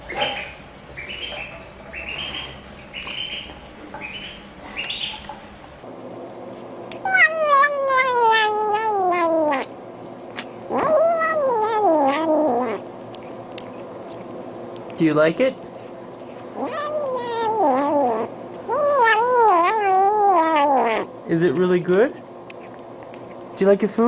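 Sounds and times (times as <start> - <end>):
duckling peeping: 0.0 - 5.3
kitten mewing: 6.9 - 9.7, 10.3 - 13.8, 16.5 - 21.1.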